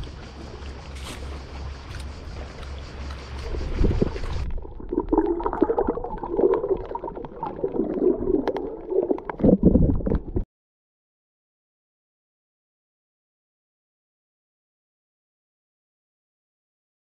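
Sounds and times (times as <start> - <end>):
underwater gurgling and bubbling: 0.0 - 10.4
wind on microphone: 3.4 - 5.2.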